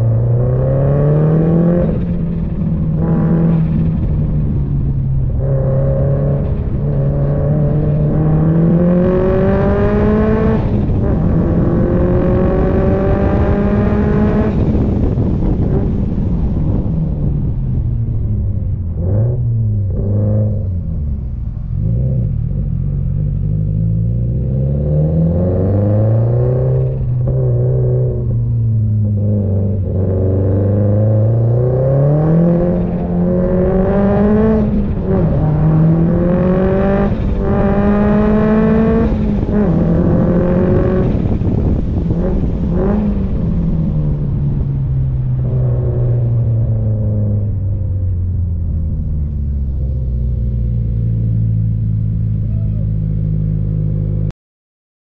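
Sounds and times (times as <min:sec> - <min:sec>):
car engine revving hard: 0:05.2 - 0:16.2, 0:21.8 - 0:44.6.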